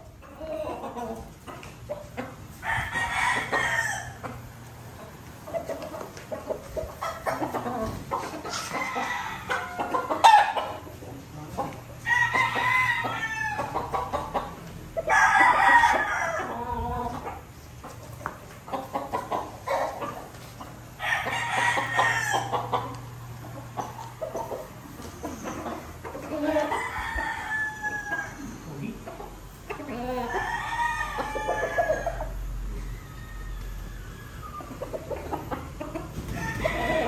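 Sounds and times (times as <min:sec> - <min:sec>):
roosters crowing: 0:00.0 - 0:37.0.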